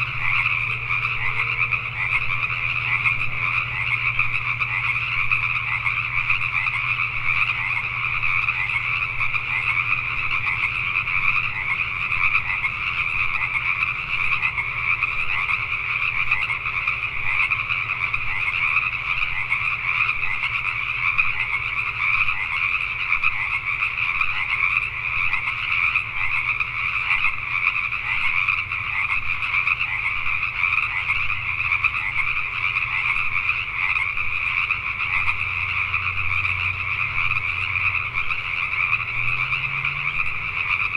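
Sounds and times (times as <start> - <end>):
chorus of frogs calling: 0.0 - 40.9.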